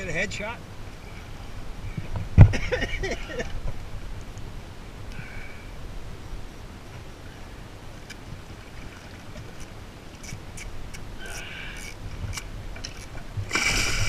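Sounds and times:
low wind rumble: 0.0s - 14.0s
short hiss: 13.5s - 14.0s.

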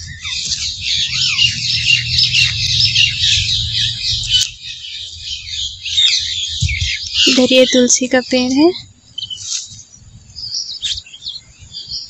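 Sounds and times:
low rumble: 0.0s - 7.2s
birds chirping: 0.0s - 12.0s.

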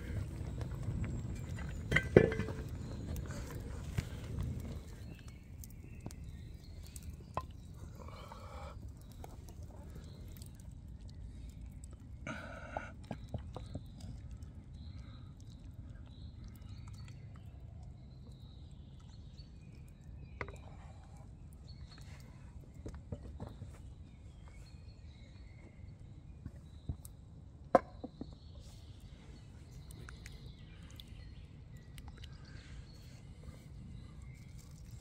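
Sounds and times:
steady low rumble: 0.0s - 7.8s.

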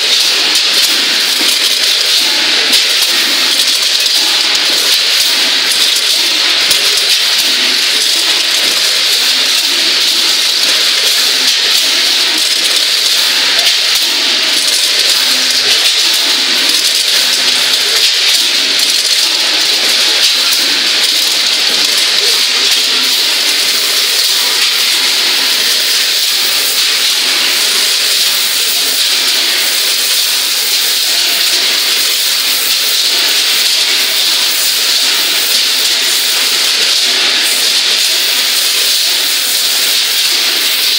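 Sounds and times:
nuts rattling on vibrating feeder: 0.0s - 40.9s.

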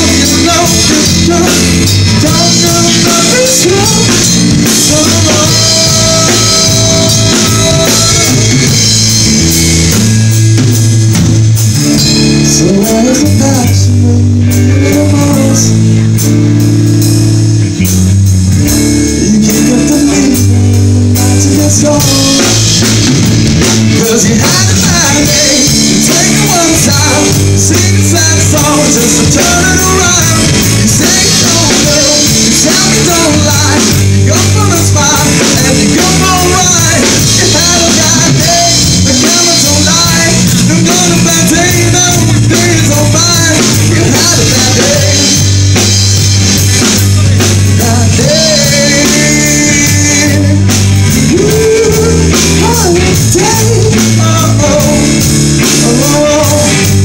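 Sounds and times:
man singing into microphone: 0.0s - 9.1s, 12.3s - 16.2s, 19.0s - 23.1s, 23.8s - 45.6s, 46.6s - 57.0s
drum kit: 0.0s - 57.0s
electric bass: 0.0s - 57.0s
electric guitar: 0.0s - 57.0s.

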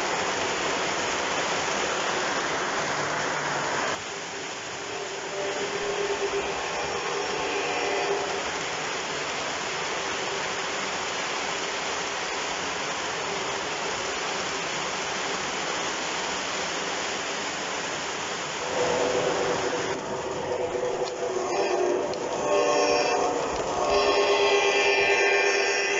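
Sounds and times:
model train wheels rumbling: 18.6s - 25.9s.

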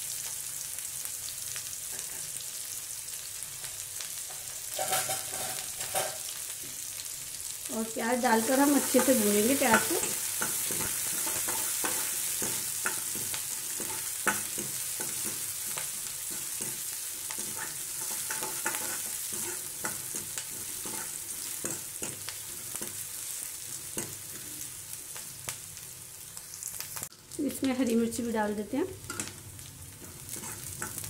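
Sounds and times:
onion sizzling in oil: 0.0s - 31.0s
ladle scraping metal pan: 4.7s - 6.2s.

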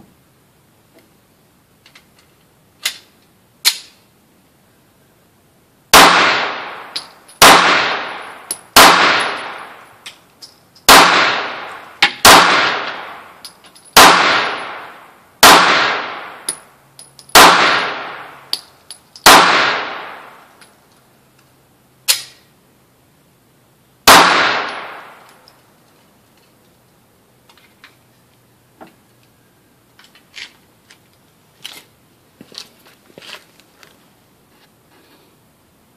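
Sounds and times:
pistol shots: 5.9s - 9.9s, 10.9s - 13.4s, 14.0s - 16.6s, 17.3s - 18.5s, 19.2s - 20.4s, 24.0s - 25.3s.

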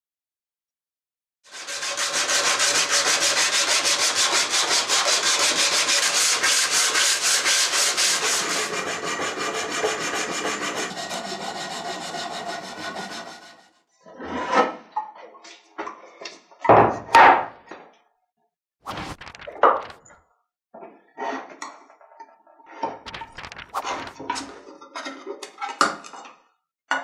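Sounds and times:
sanding strip rasping on wood: 1.5s - 13.7s.

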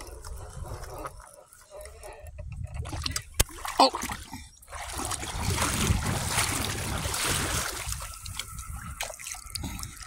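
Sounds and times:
river water splashing and rushing: 3.4s - 10.0s.

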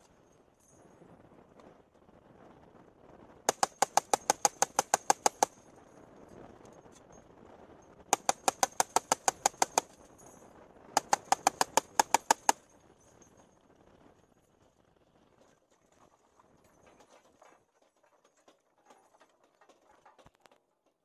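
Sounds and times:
heavy machine gun bursts: 3.5s - 5.6s, 8.2s - 10.0s, 11.0s - 12.6s.

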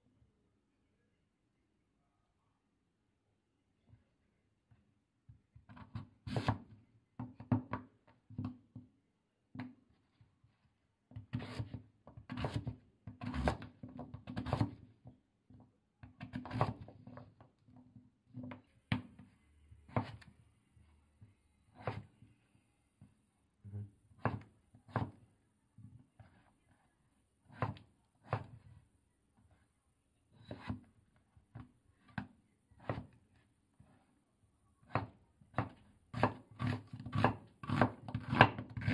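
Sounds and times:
knife cutting on wooden board: 11.3s - 14.8s, 16.2s - 16.9s, 19.9s - 20.2s, 21.7s - 22.1s, 27.5s - 28.6s, 30.4s - 30.8s, 34.9s - 38.9s.

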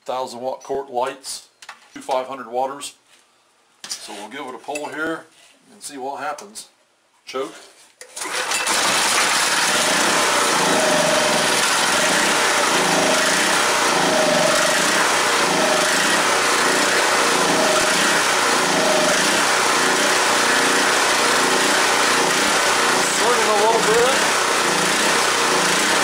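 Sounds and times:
generator engine running: 8.2s - 26.0s.

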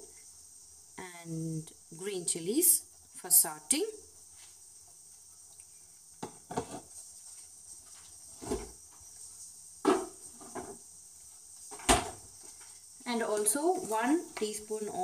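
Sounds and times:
faint steady hum: 0.0s - 15.0s
kitchen items knocking and clattering: 6.2s - 6.9s, 9.8s - 10.8s, 11.7s - 12.3s.

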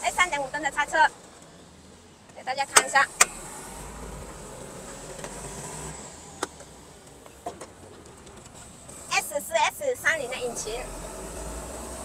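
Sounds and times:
engine cover latch clicks: 2.7s - 3.4s.

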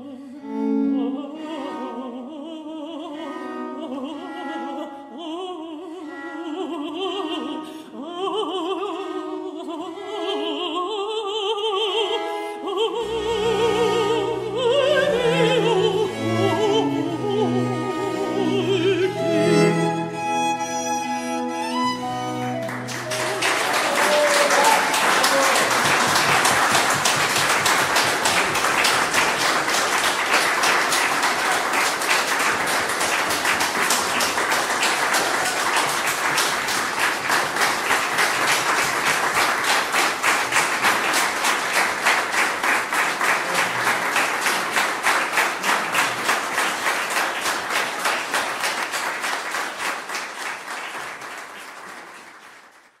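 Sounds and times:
audience applause: 21.8s - 53.0s
rhythmic clapping in unison: 22.6s - 53.0s.

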